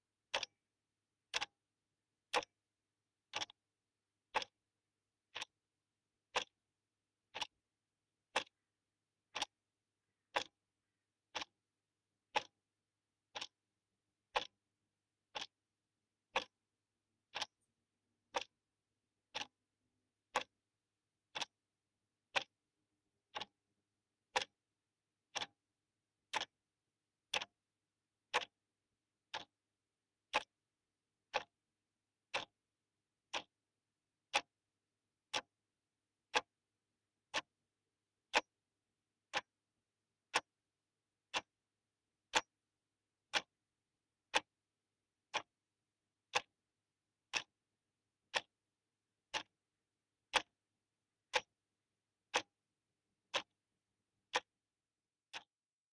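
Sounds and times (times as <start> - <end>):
clock ticking: 0.0 - 0.6, 1.3 - 1.5, 2.3 - 2.5, 3.3 - 3.6, 4.3 - 4.6, 5.3 - 5.5, 6.3 - 6.6, 7.3 - 7.6, 8.3 - 8.6, 9.3 - 11.6, 12.3 - 12.6, 13.3 - 13.6, 14.3 - 14.6, 15.3 - 15.6, 16.3 - 16.6, 17.3 - 17.6, 18.3 - 18.5, 19.3 - 19.6, 20.3 - 20.5, 21.3 - 21.5, 22.3 - 22.5, 23.3 - 23.6, 24.3 - 24.6, 25.3 - 25.6, 26.3 - 26.6, 27.3 - 27.6, 28.3 - 28.6, 29.3 - 29.6, 30.3 - 30.5, 31.3 - 31.5, 32.3 - 32.5, 33.3 - 33.5, 34.3 - 34.5, 35.3 - 35.5, 38.3 - 38.5, 39.3 - 39.5, 40.3 - 40.5, 41.3 - 41.5, 42.3 - 42.5, 43.3 - 43.5, 44.3 - 44.5, 45.3 - 45.5, 46.3 - 46.5, 47.3 - 47.5, 48.3 - 48.6, 49.3 - 49.5, 50.3 - 50.5, 51.3 - 51.5, 53.3 - 53.5, 55.3 - 55.5.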